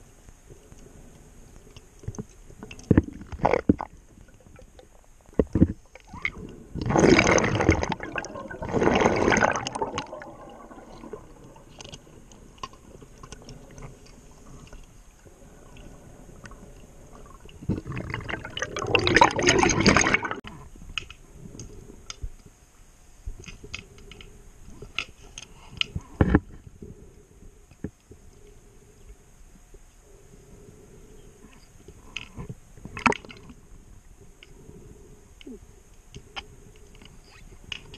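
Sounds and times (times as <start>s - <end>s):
faint clicks: 0.2s - 6.9s, 23.3s - 30.5s, 31.2s - 37.9s
bubbling exhalations: 3.0s - 11.9s, 17.1s - 20.6s.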